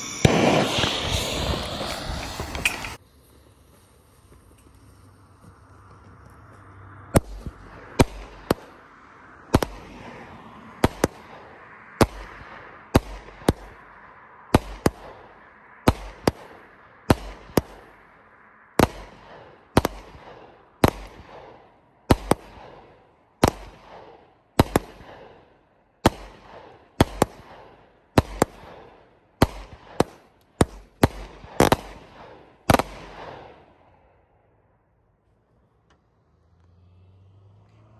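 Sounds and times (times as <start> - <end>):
fireworks launch thumps and breaks: 0.0 - 3.0
crackling tail of sparks: 0.0 - 5.1, 7.2 - 25.3.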